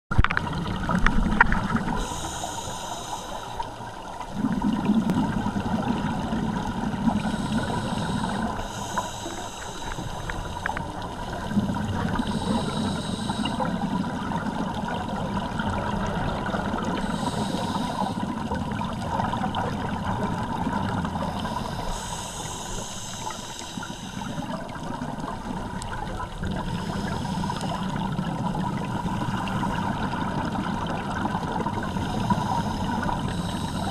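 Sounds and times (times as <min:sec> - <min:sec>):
bubbling gurgle of exhaled air: 0:00.1 - 0:33.9
regulator inhalation hiss: 0:02.0 - 0:03.9, 0:07.1 - 0:11.0, 0:12.1 - 0:13.9, 0:17.0 - 0:18.5, 0:21.2 - 0:24.6, 0:26.7 - 0:28.0, 0:31.9 - 0:33.9.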